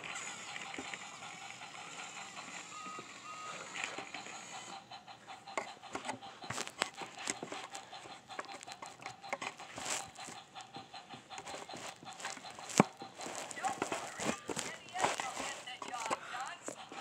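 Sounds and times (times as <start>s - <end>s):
faint toy motor hum: 0.0s - 17.0s
toy train wheels clicking and rattling: 0.0s - 17.0s.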